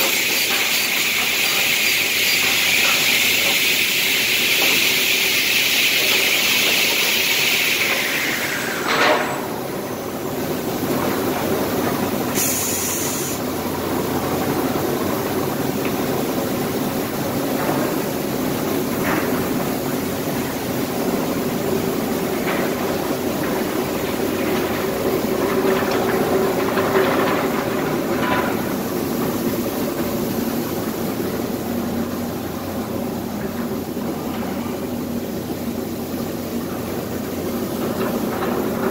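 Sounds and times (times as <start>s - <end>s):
loud hiss: 0.0s - 10.9s, 12.2s - 14.0s
circular saw machinery running: 0.0s - 38.9s.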